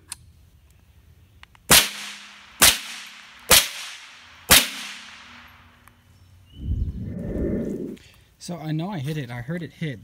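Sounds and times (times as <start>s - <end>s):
gunshots hitting metal target: 1.7s - 5.4s.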